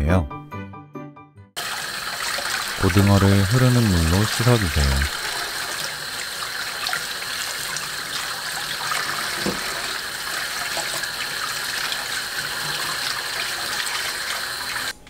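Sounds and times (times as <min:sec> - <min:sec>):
tap running into metal sink: 0:09.1 - 0:10.0.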